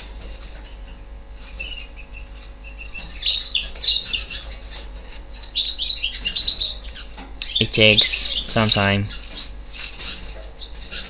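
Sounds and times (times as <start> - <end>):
steady low hum: 0.0 - 11.0
small bird chirping: 1.4 - 11.0.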